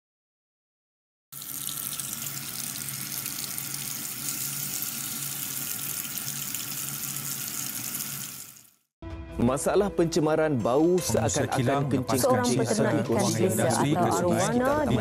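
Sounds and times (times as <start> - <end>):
water running from a tap: 1.4 - 8.9.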